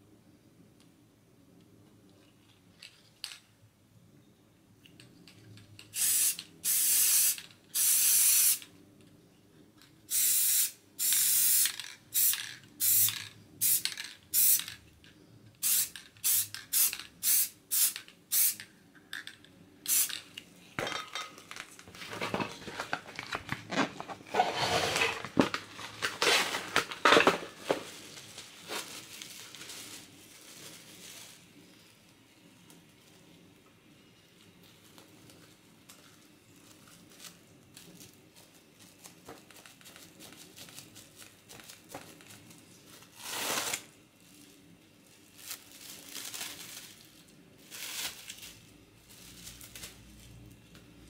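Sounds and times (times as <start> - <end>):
spray paint can hissing: 5.9 - 8.7, 10.1 - 14.7, 15.6 - 18.6, 19.9 - 20.2
rustling and scraping: 20.8 - 33.4.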